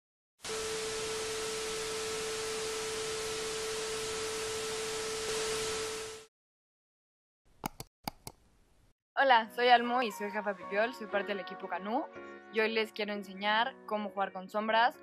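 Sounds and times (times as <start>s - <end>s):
tv static hiss: 0.5s - 6.3s.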